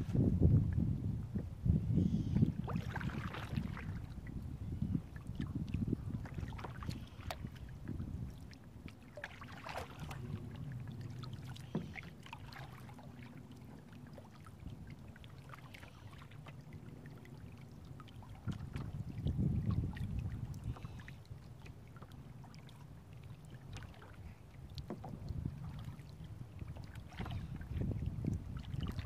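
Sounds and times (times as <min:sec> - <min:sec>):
paddle dipping and dripping: 0:00.1 - 0:29.0
small water splashes: 0:02.4 - 0:04.4, 0:05.1 - 0:29.0
steady low rumble: 0:09.8 - 0:11.5.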